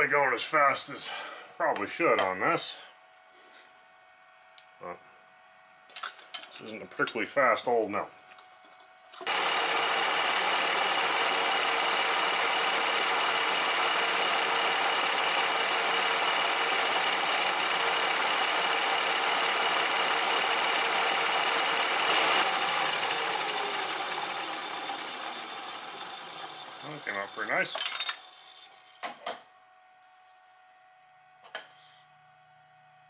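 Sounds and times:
spindle winding down whine: 9.2s - 27.7s
milling machine cutting metal: 9.2s - 27.8s.

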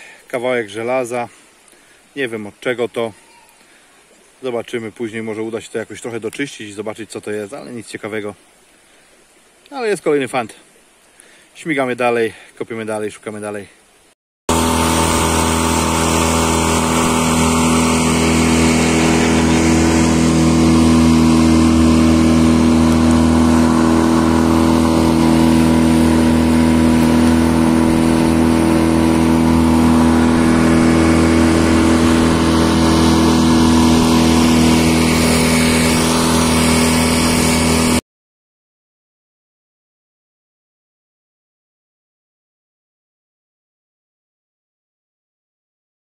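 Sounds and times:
outboard motor running: 14.5s - 38.0s.

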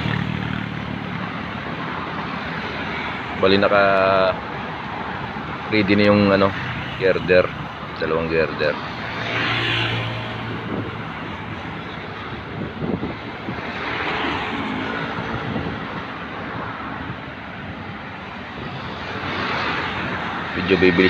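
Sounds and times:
road traffic passing: 0.0s - 21.0s.

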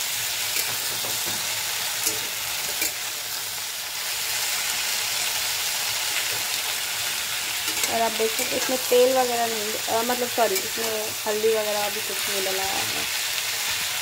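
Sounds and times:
vegetables sizzling in oil: 0.0s - 14.0s
metal spatula clicking on pan: 7.6s - 8.9s.

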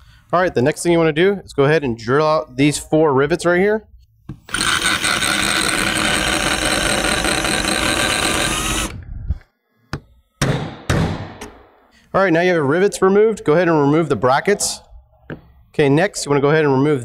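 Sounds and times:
cordless drill drilling metal: 4.4s - 9.0s.

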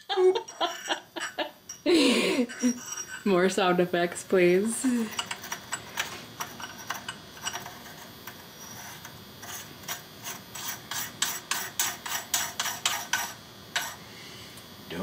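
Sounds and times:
metal threads scraping and clicking: 0.4s - 3.6s, 4.9s - 14.0s.

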